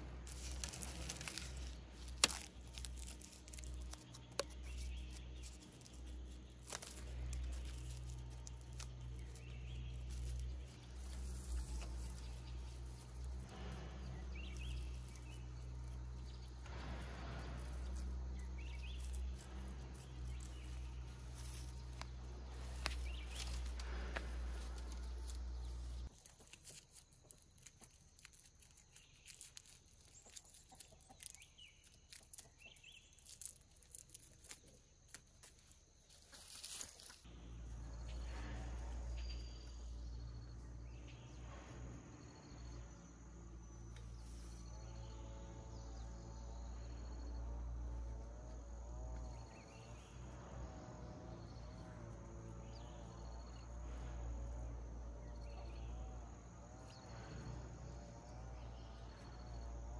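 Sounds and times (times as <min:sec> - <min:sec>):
bamboo stakes clicking and rustling: 0:00.0 - 0:37.3
insects chirping: 0:00.0 - 0:59.9
low steady hum: 0:00.0 - 0:59.9.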